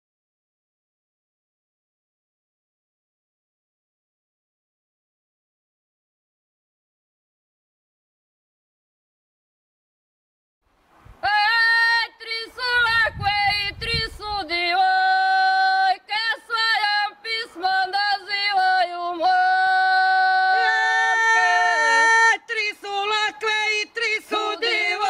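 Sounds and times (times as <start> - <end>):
woman singing unaccompanied: 11.2 - 25.0.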